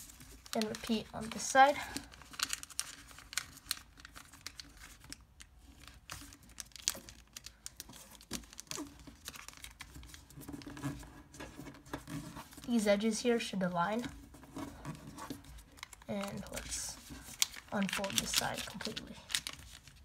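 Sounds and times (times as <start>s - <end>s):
paper rustling and crinkling: 0.0s - 12.9s, 13.9s - 20.0s.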